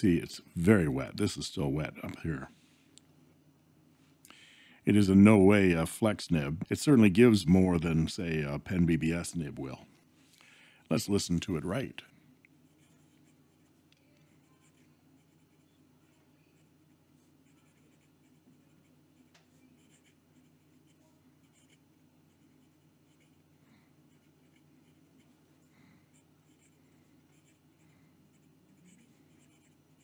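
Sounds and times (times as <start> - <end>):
pen nib scratching on paper: 12.6 - 25.4, 26.1 - 30.0.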